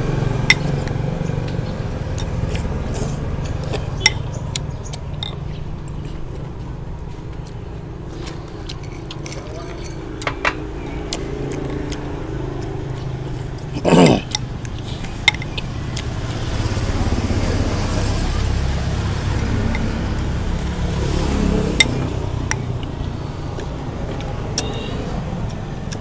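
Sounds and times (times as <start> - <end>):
vehicle engine rumble: 0.0 - 26.0
spoons clinking on bowls: 8.7 - 10.6.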